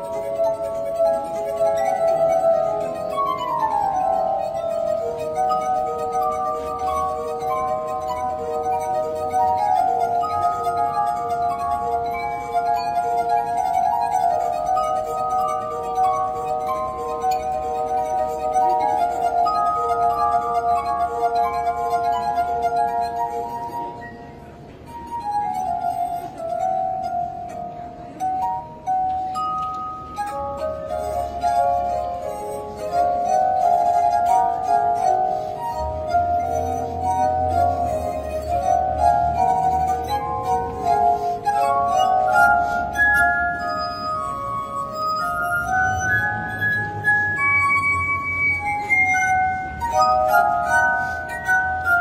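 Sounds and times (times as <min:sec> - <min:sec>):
glass harp melody: 0:00.0 - 0:52.0.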